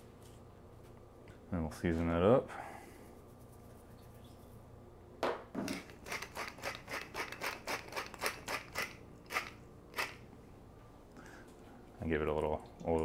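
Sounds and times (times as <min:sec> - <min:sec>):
seasoning shaker rattling: 0:05.7 - 0:10.2.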